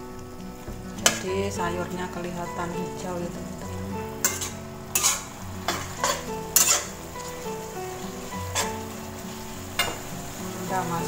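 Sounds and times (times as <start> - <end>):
sauce sizzling: 0.0 - 11.0
metal spatula scraping wok: 3.9 - 10.8.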